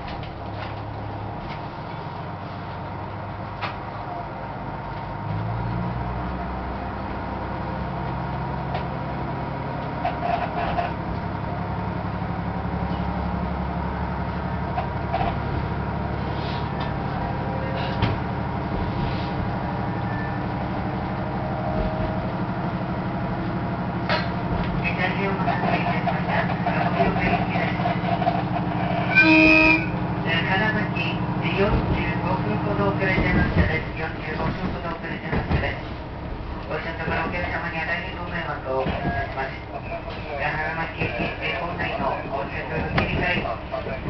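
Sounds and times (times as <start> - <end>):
wheels clacking over rail joints: 0.0 - 4.1, 4.9 - 44.0
electric train running: 9.8 - 44.0.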